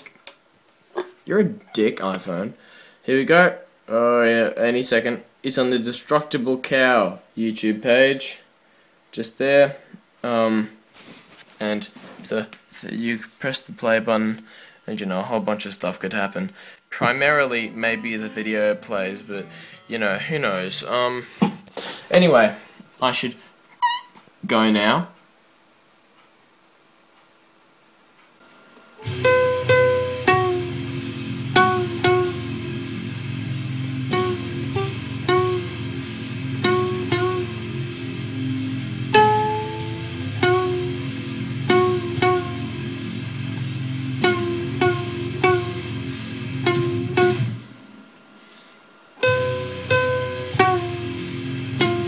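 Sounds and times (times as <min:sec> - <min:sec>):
ukulele plucked melody: 0:17.5 - 0:20.0, 0:29.0 - 0:32.9, 0:34.0 - 0:37.9, 0:39.1 - 0:42.8, 0:44.2 - 0:45.9, 0:46.6 - 0:47.5, 0:49.2 - 0:52.0.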